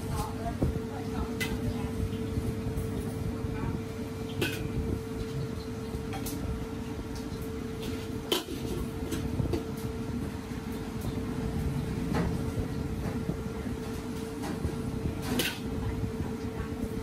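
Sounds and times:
kitchen rumble and hum: 0.0s - 17.0s.

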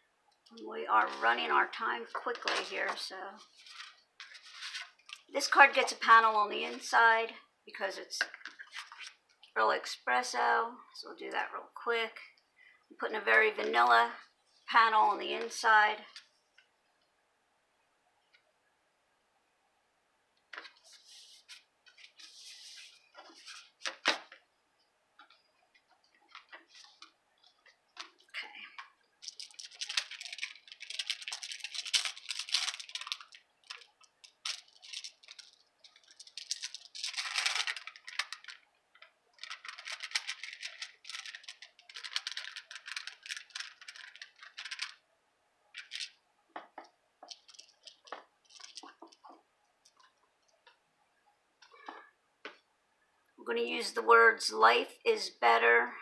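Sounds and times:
paper and plastic rustling: 1.0s - 6.9s, 8.2s - 9.2s, 20.6s - 24.4s, 25.2s - 45.0s, 45.8s - 50.5s.

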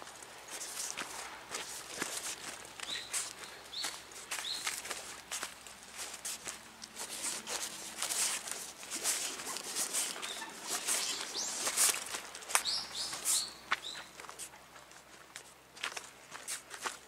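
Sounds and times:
footsteps crunching dry leaves: 0.0s - 17.0s.

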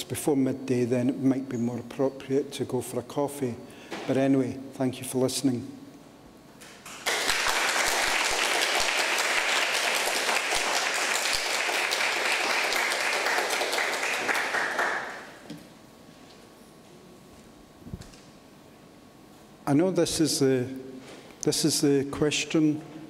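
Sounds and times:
audience applauding: 6.9s - 15.4s.

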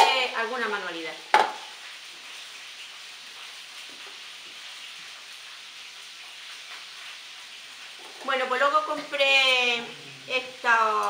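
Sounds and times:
faint room hiss: 0.0s - 11.0s.

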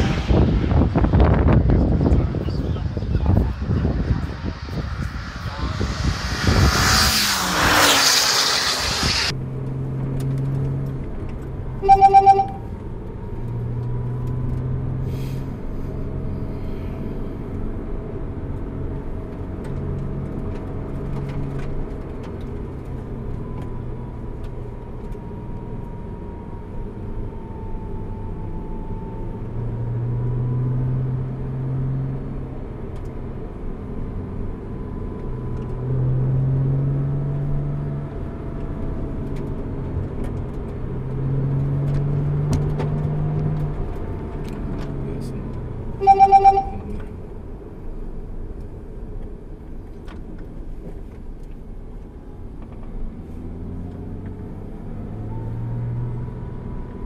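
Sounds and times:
wind and passing car rush: 0.0s - 11.9s
car engine drone: 0.0s - 57.0s
short electronic beep: 11.8s - 12.7s, 46.0s - 47.0s.

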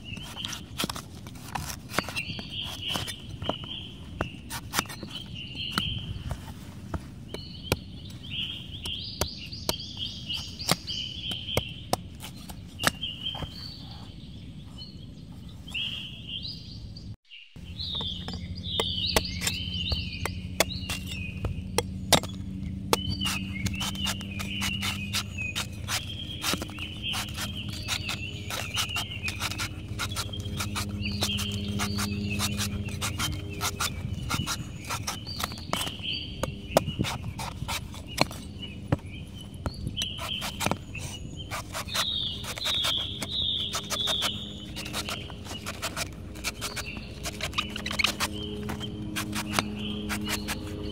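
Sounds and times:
cleaver chopping coconut husk: 0.0s - 6.3s, 6.9s - 13.1s, 17.9s - 50.9s
birds chirping: 0.0s - 50.9s.

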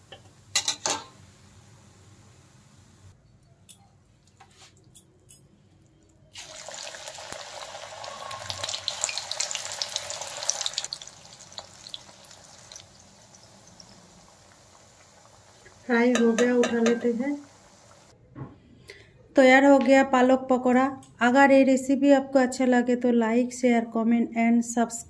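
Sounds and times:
batter sizzling in hot oil: 6.4s - 18.1s.

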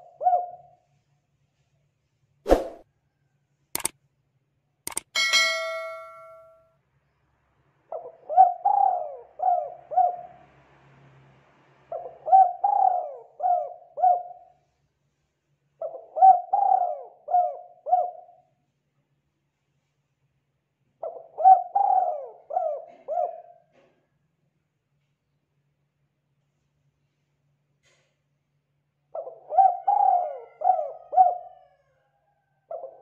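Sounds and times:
dove cooing: 0.0s - 0.7s, 7.9s - 10.3s, 11.9s - 14.5s, 15.8s - 18.4s, 21.0s - 23.7s, 29.2s - 31.8s, 32.7s - 33.0s
clicks: 4.9s - 6.4s
ringing ding: 5.2s - 6.6s.

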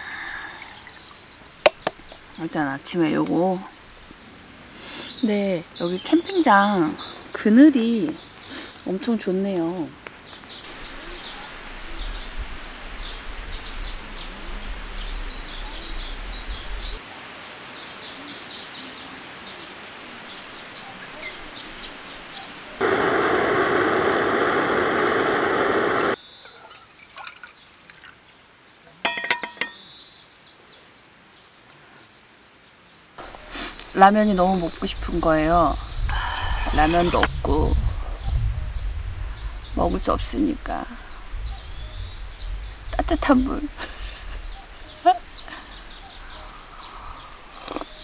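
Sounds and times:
small birds chirping: 0.0s - 29.0s, 29.7s - 48.0s
loud rush of noise: 22.6s - 26.2s, 33.2s - 47.6s.

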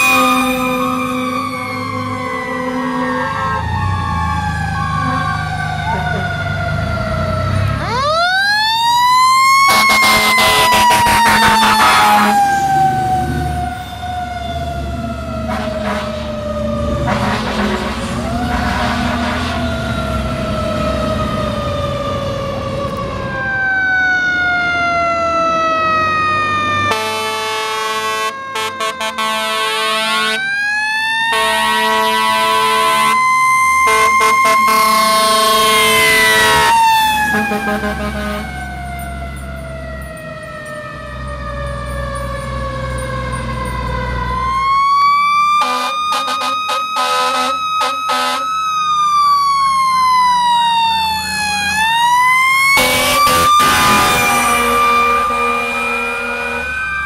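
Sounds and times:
fire engine siren wailing: 0.0s - 57.0s
air horn toots: 9.6s - 12.5s, 15.5s - 16.3s, 17.0s - 19.5s, 26.9s - 30.4s, 31.3s - 33.2s, 33.8s - 38.6s, 45.6s - 48.5s, 52.7s - 56.7s.

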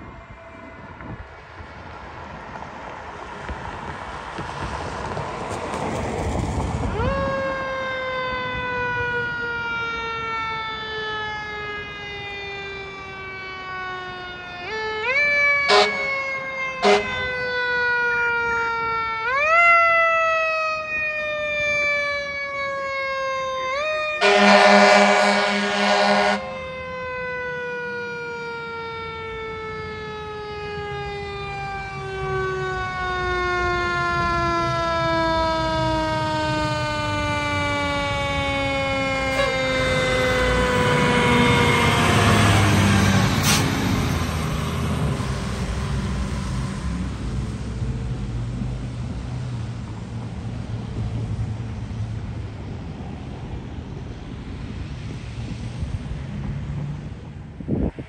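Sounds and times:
fire engine siren: 0.0s - 58.0s
fire engine horn toots: 15.5s - 17.7s, 23.7s - 26.8s, 34.7s - 42.6s, 43.3s - 43.9s.

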